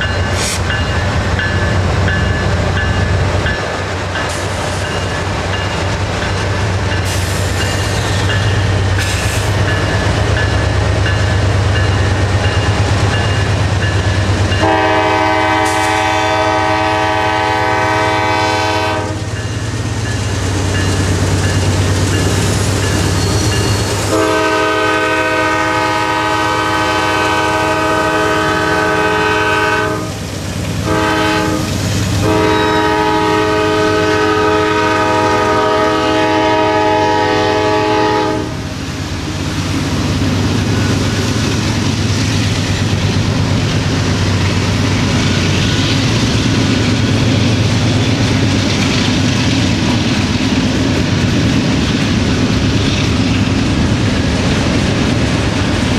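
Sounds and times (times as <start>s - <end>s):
diesel locomotive engine rumble: 0.0s - 55.9s
train air horn blasts: 14.5s - 19.4s, 24.0s - 30.2s, 30.8s - 38.6s.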